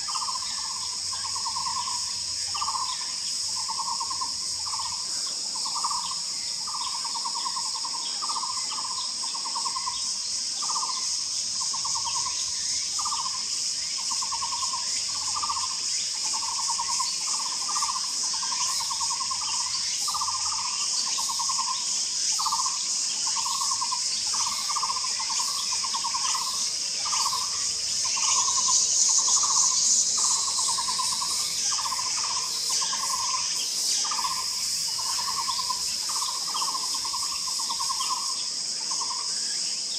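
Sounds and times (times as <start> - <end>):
high insect drone: 0.0 - 39.9.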